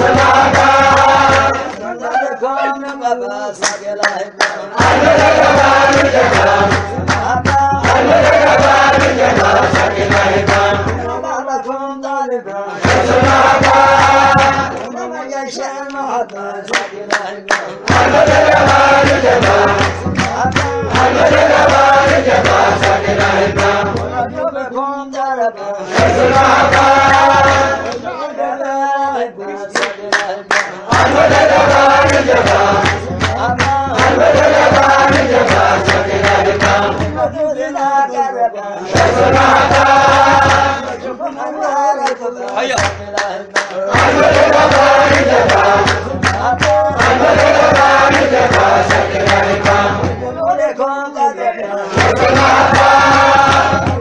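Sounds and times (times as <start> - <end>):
sharp percussive strikes: 0.0 - 1.9, 3.6 - 11.3, 12.8 - 15.0, 16.7 - 24.4, 25.9 - 28.1, 29.8 - 37.4, 38.9 - 41.0, 42.6 - 50.6, 51.9 - 54.0
men chanting: 0.0 - 54.0.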